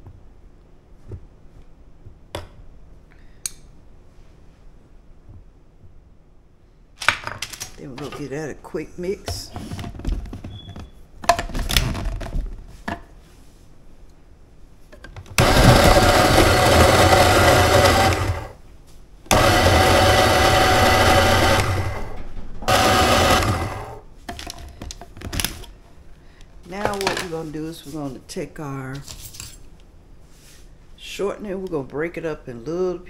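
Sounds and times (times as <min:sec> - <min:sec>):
food processor motor pulsing: 0:15.4 - 0:18.6, 0:19.3 - 0:24.0.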